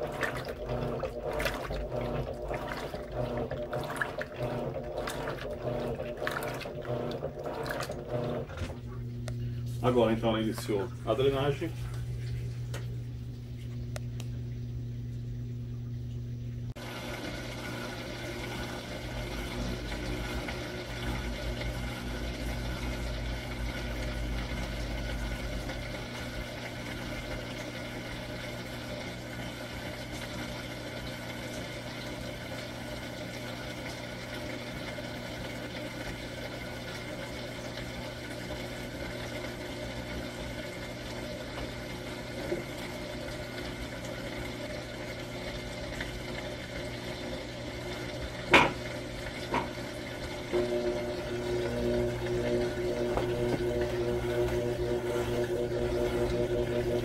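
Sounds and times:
drain pump humming: 0.0 - 57.0
water rushing and gurgling: 49.4 - 57.0.

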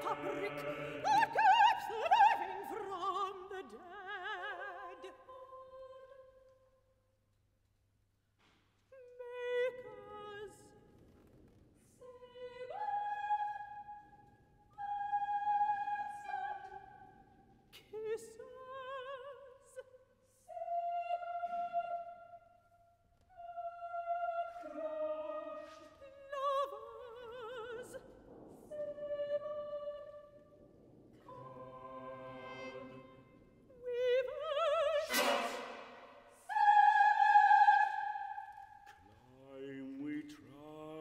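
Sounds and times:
choir singing: 0.0 - 6.3, 14.7 - 17.3, 20.4 - 22.6, 23.3 - 28.0, 31.2 - 41.0
soprano singing: 0.0 - 6.5, 8.9 - 10.8, 12.0 - 14.1, 14.7 - 22.5, 23.3 - 30.5, 31.2 - 41.0.

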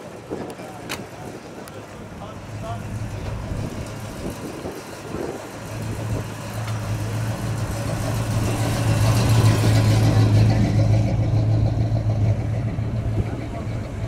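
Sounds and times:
car engine driving past: 5.2 - 14.0.

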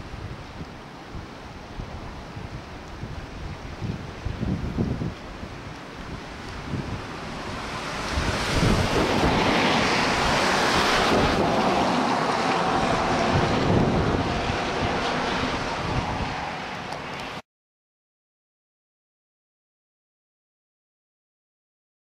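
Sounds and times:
wind buffeting microphone: 0.0 - 17.3
floodwater rushing: 0.0 - 17.4.

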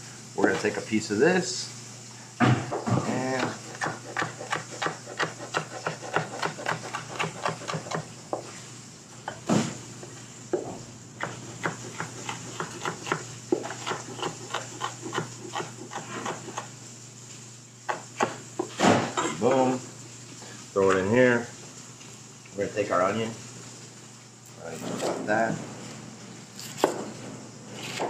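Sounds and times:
knife chopping on plastic board: 3.3 - 8.5, 10.5 - 16.7.

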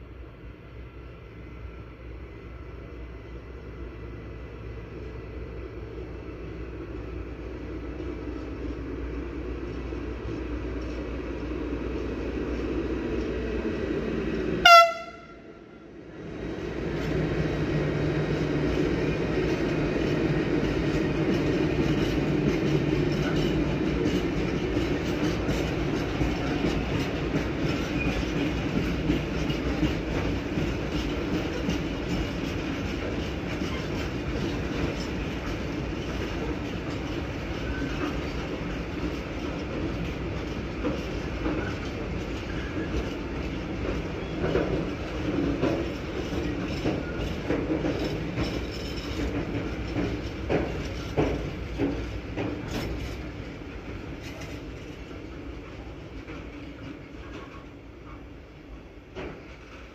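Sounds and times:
train rumble: 0.0 - 59.9
train horn blast: 14.6 - 15.8.

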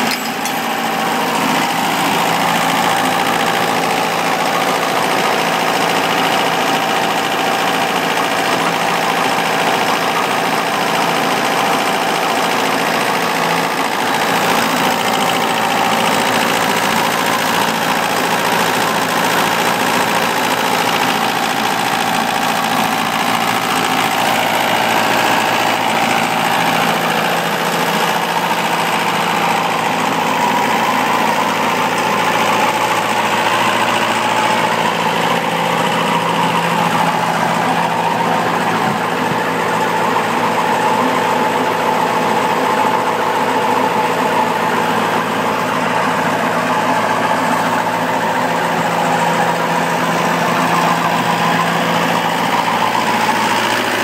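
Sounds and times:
stump grinder engine running: 0.0 - 54.0.

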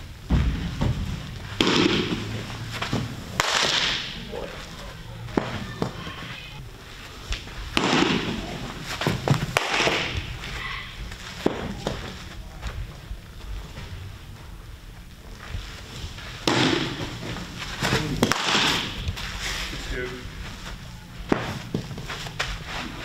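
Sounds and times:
baseballs smacking into gloves: 0.3 - 4.3, 5.3 - 6.1, 7.2 - 13.0, 16.4 - 19.3, 21.2 - 23.0
scuffing from throws: 4.2 - 23.0.

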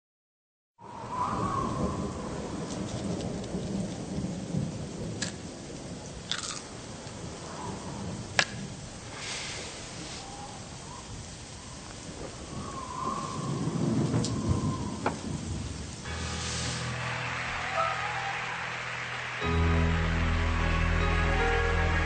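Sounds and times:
thunder rumbling: 0.8 - 9.1, 11.2 - 21.0
steady rain: 1.0 - 22.0.

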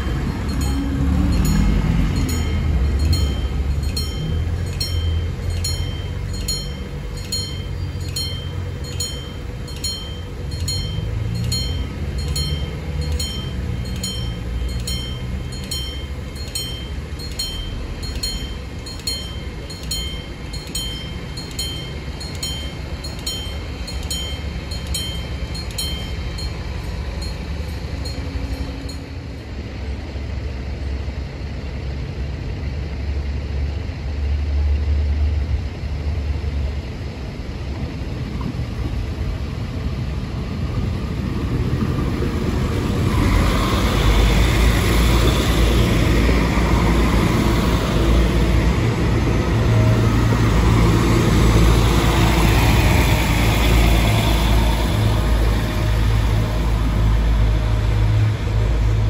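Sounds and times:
level crossing warning bell: 0.0 - 29.9
low traffic rumble: 0.0 - 59.0
wind: 0.0 - 59.0.

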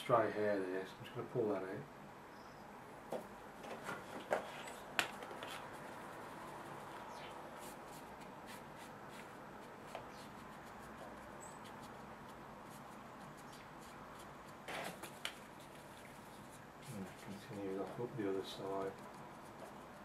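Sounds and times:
brush scratching across paper: 5.4 - 20.0.

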